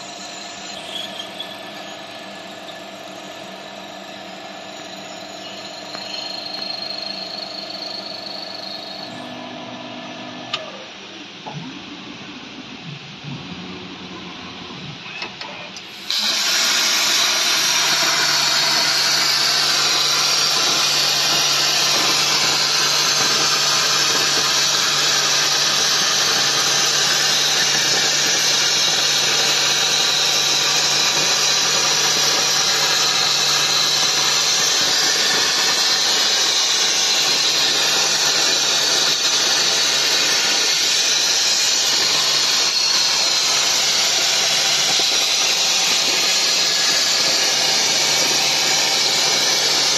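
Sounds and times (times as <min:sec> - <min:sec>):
plasma torch arc hissing: 0:15.8 - 0:49.9.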